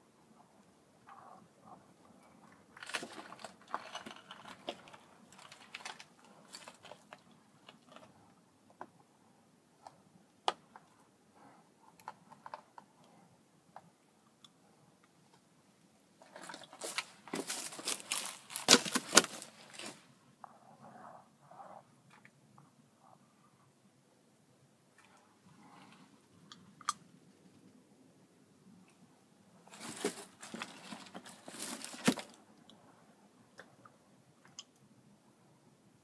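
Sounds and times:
footsteps on dry leaves and rubble: 16.2s - 20.1s, 29.7s - 32.4s.

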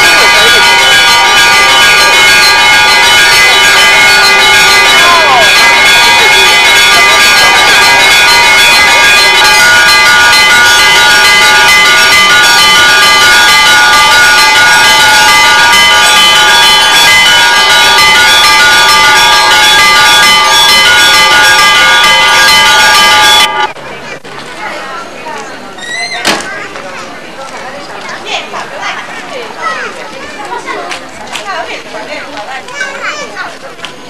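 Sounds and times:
church bells ringing: 0.0s - 23.8s.

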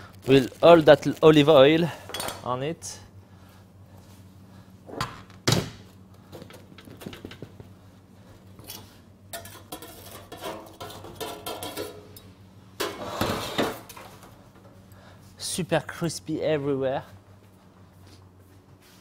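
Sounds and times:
metal clatter and scraping: 8.6s - 12.0s.

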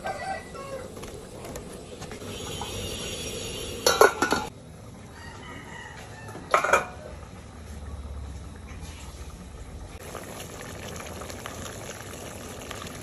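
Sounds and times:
rooster crowing: 0.0s - 1.0s, 5.1s - 7.2s
metal pot and ladle clattering: 3.8s - 4.5s, 6.4s - 7.0s.

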